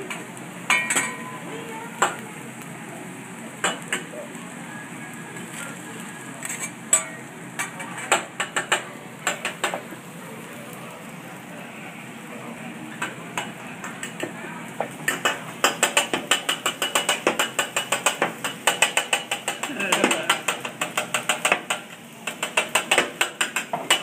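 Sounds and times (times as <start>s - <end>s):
food sizzling: 0.0s - 24.0s
metal spatula clacking on griddle: 0.1s - 1.4s, 3.6s - 4.1s, 6.4s - 9.8s, 12.9s - 24.0s.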